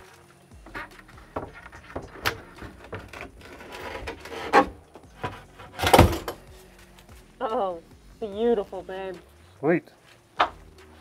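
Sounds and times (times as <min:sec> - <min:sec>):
board scraping: 0:00.0 - 0:06.4
board knocking against wood: 0:00.7 - 0:03.2.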